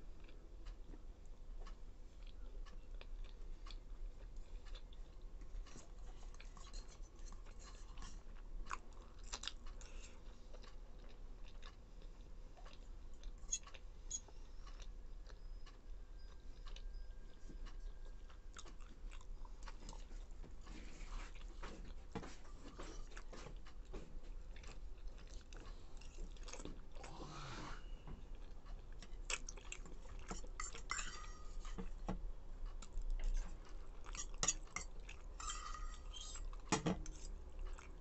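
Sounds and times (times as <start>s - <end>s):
chewing noodles: 1.6s - 27.5s, 28.3s - 32.0s, 32.6s - 38.0s
fork clinking on a steel bowl: 30.3s - 31.7s, 34.2s - 36.4s.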